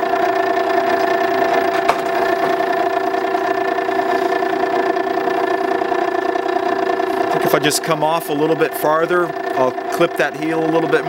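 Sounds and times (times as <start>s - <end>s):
sharpener motor hum: 0.0s - 8.6s.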